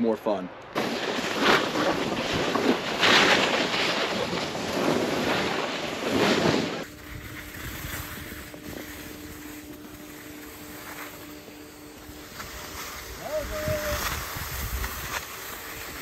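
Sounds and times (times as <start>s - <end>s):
skis scraping over snow: 0.8s - 16.0s
wind rushing over microphone: 13.0s - 15.1s.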